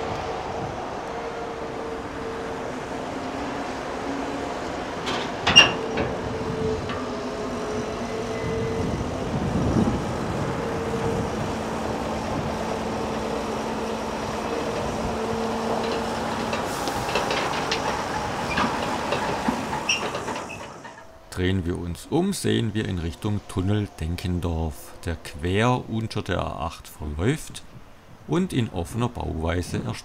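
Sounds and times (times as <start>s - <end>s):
heavy diesel machinery running: 0.0s - 25.8s
metallic clanks: 5.0s - 7.7s, 15.6s - 21.3s.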